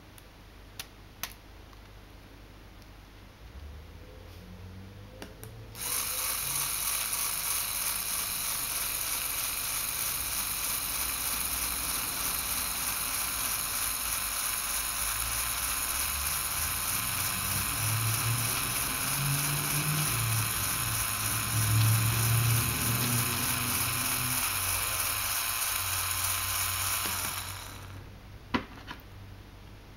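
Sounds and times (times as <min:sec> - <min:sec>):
motor and plastic gears whirring: 0:05.7 - 0:28.0
deep drone: 0:17.1 - 0:24.7.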